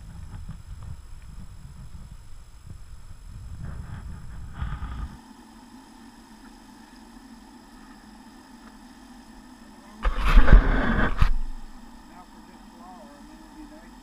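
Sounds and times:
camp stove humming: 0.0 - 14.0.

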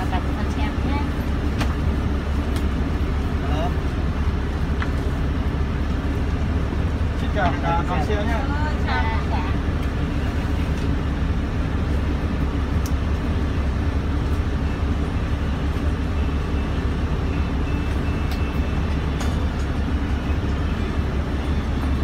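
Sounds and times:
bus engine droning: 0.0 - 22.0.

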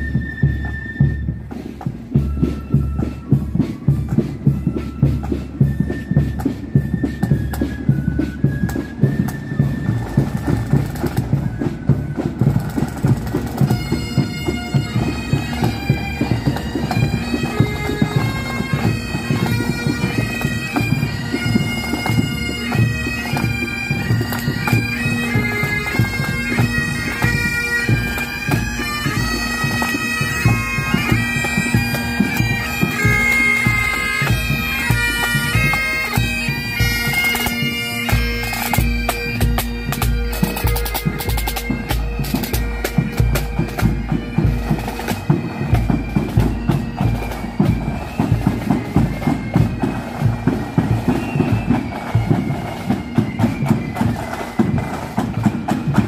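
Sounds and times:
bagpipes playing: 0.0 - 56.0
snare and bass drums: 0.0 - 56.0.

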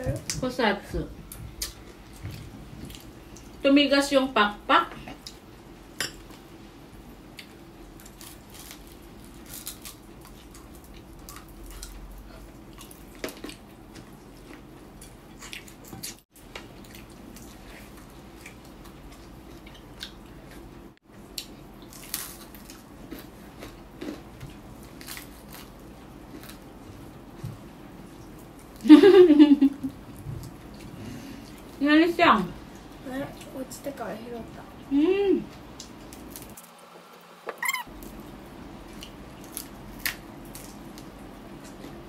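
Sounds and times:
faint steady hum: 0.0 - 42.0
crunching fried chicken: 7.4 - 13.7, 21.3 - 26.8, 37.8 - 42.0.

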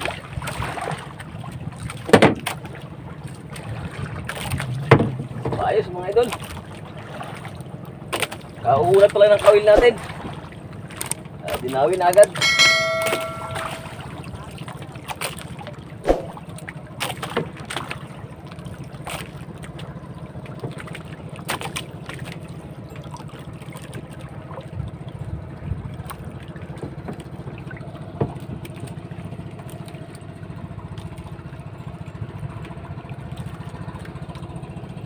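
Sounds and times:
boat engine chugging: 0.0 - 35.0
water washing along hull: 0.0 - 35.0.

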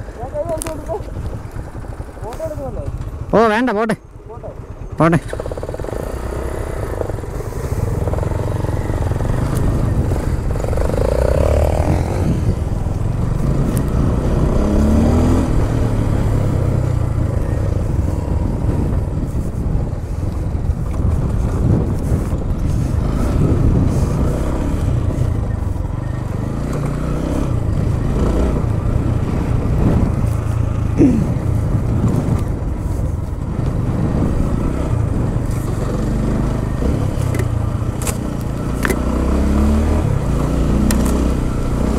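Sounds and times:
motorcycle engine revving: 0.0 - 41.9.

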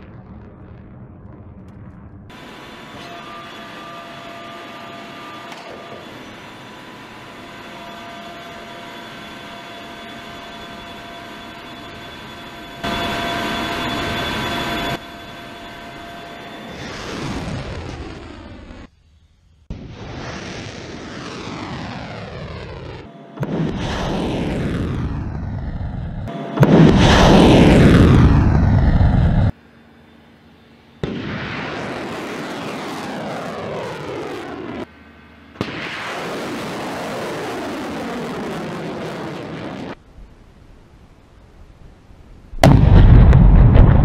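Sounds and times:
missiles launching roar: 19.7 - 29.5, 35.6 - 40.0, 42.6 - 44.0.

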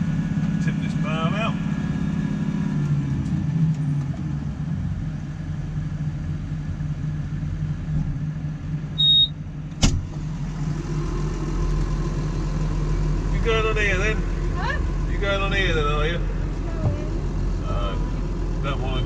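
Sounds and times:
tractor diesel engine running: 0.0 - 19.0
short high beep: 9.0 - 9.4
sharp knock: 9.8 - 10.1.

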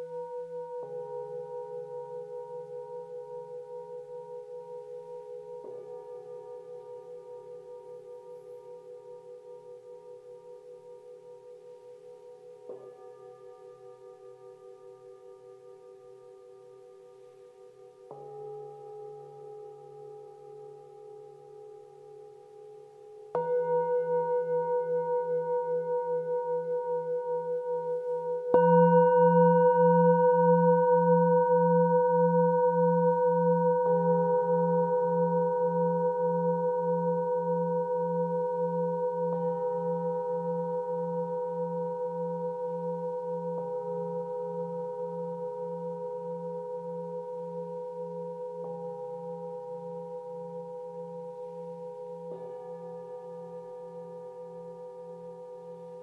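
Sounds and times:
singing bowls struck with mallet: 23.3 - 56.0.

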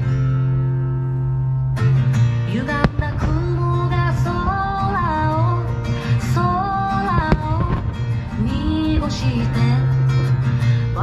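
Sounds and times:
guitar: 0.0 - 11.0
person singing: 2.5 - 10.2.

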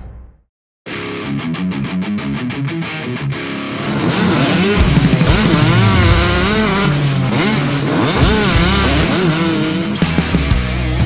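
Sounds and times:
rock guitar music: 0.9 - 11.0
motorcycle engine revving: 3.7 - 11.0.

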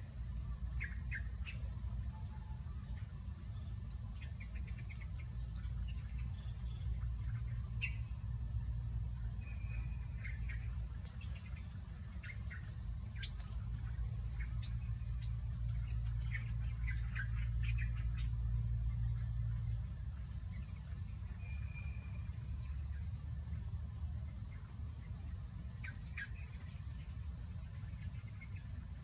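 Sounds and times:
insects droning: 0.0 - 29.0
bird chirps: 9.1 - 23.2.

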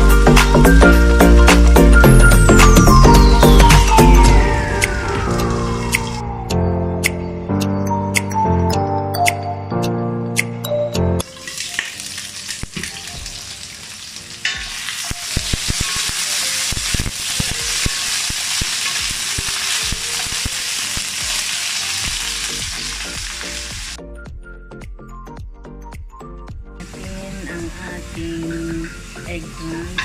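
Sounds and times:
vegetables sizzling in hot oil: 11.2 - 24.0, 26.8 - 30.0.

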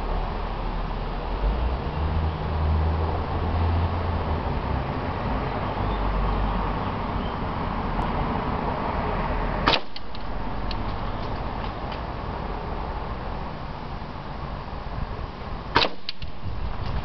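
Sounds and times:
steady background noise: 0.0 - 17.0
airsoft rifle shot: 9.6 - 10.3, 15.7 - 16.4.

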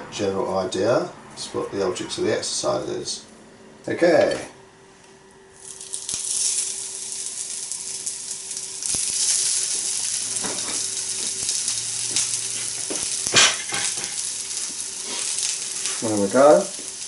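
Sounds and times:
potato patties sizzling in oil: 5.6 - 17.0.

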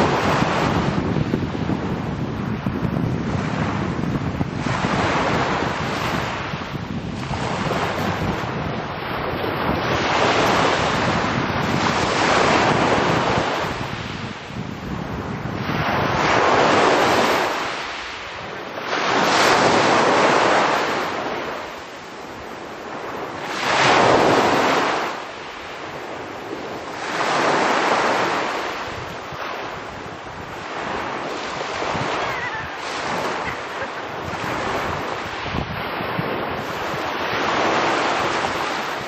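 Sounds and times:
small waves breaking on pebble beach: 18.9 - 39.0.

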